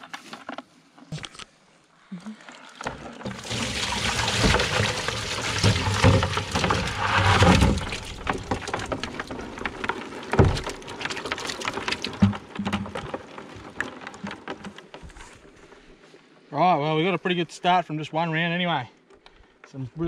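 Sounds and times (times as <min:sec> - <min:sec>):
water splashing into tub: 0:02.4 - 0:12.7.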